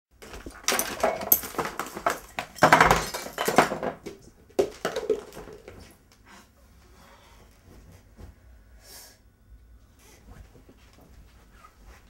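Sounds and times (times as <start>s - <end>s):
metal utensils clinking: 0.5s - 3.7s.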